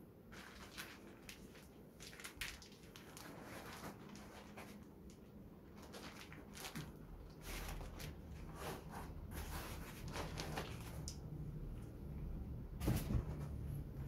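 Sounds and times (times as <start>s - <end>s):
plastic bag crinkling: 0.3s - 11.1s.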